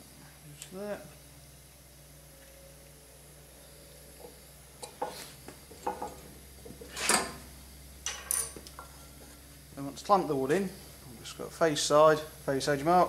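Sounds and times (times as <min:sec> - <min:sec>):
wood knocking on metal table: 0:05.8 - 0:06.2.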